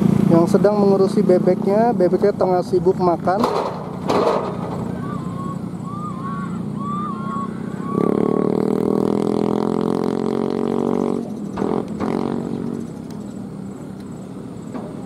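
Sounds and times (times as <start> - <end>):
loud droning hum: 0.0 - 15.0
short high rising-and-falling calls: 4.6 - 9.3.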